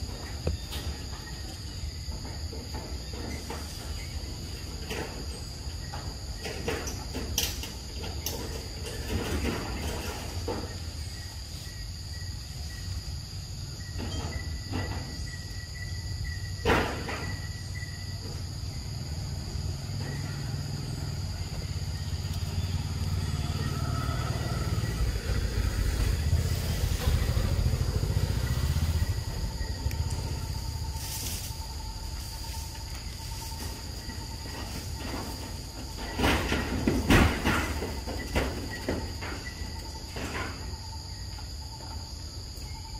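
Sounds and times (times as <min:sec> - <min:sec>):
insect drone: 0:00.0 - 0:42.9
low rumble: 0:22.0 - 0:33.3.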